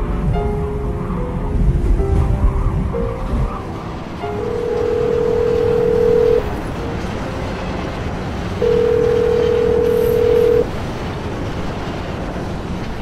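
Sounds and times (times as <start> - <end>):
rumbling background noise: 0.0 - 13.0
telephone ringback tone: 4.3 - 6.5, 8.6 - 10.7.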